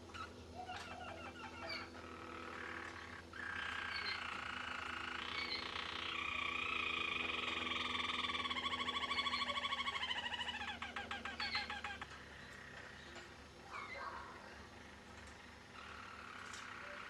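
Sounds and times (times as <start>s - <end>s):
canary singing rolling song: 0.0s - 17.0s.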